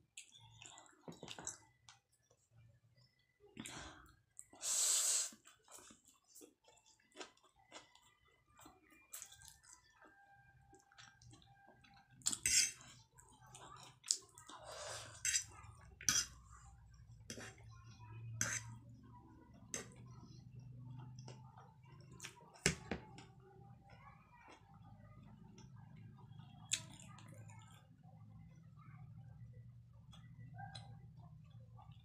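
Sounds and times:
wet chewing: 5.3s - 16.3s.

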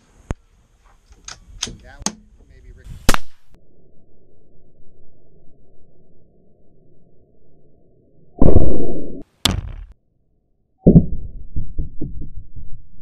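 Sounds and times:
sharp crack: 3.0s - 3.6s
deep thumps of bullet impacts: 8.4s - 10.0s, 10.8s - 12.6s.

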